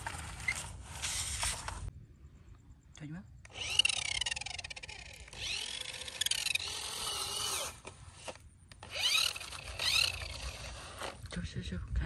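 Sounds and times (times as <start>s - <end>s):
toy truck electric motor whining: 3.4s - 11.3s.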